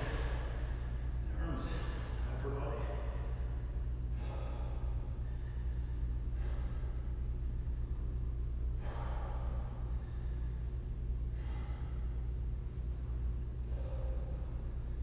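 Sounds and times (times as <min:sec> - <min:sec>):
steady low hum: 0:00.0 - 0:15.0
man exhaling heavily: 0:04.1 - 0:07.2, 0:08.7 - 0:10.7, 0:11.3 - 0:12.3.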